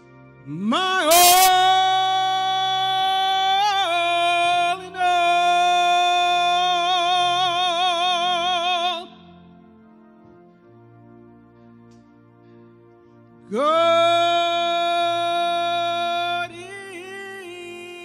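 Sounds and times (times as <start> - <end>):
gospel singer holding high note: 1.0 - 2.9.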